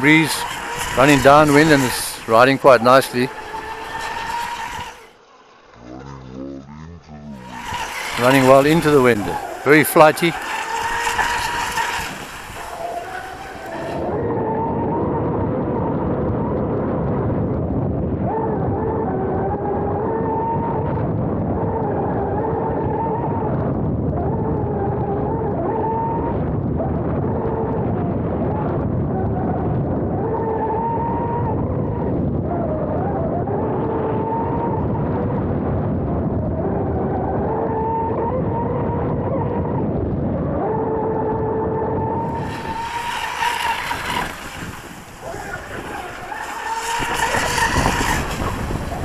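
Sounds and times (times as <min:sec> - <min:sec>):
rushing water and wind: 0:00.0 - 0:05.6, 0:07.3 - 0:14.7, 0:42.0 - 0:49.0
electric boat motor whining: 0:00.0 - 0:16.6, 0:17.9 - 0:49.0.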